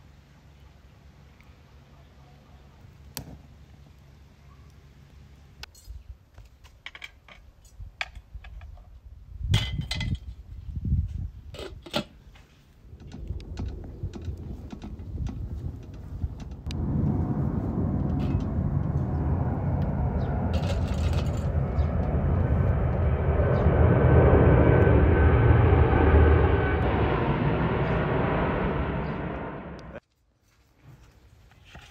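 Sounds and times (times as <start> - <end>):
jet airliner passing overhead: 12.7 - 30.0.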